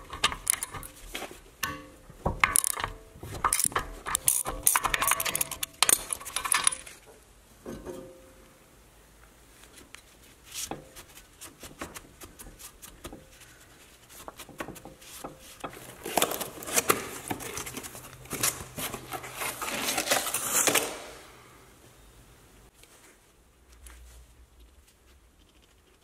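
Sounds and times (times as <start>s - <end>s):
metallic clicks and knocks: 0.0s - 7.0s.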